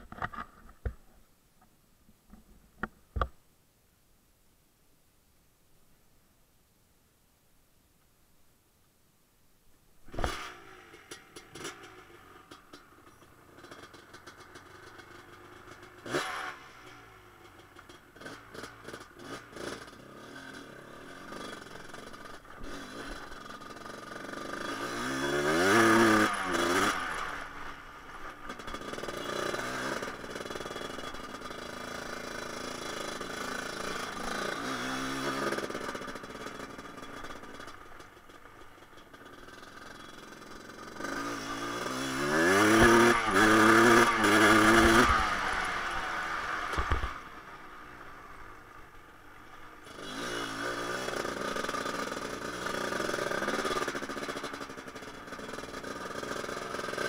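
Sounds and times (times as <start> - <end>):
two-stroke engine revving: 10.1 - 12.8, 13.6 - 48.8, 49.8 - 57.0.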